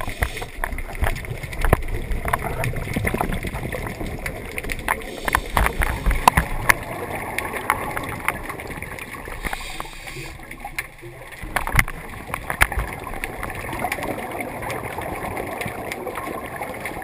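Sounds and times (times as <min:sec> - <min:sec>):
sharp clicks and knocks: 0:00.0 - 0:06.9, 0:09.4 - 0:13.0
underwater rumble of water: 0:00.0 - 0:17.0.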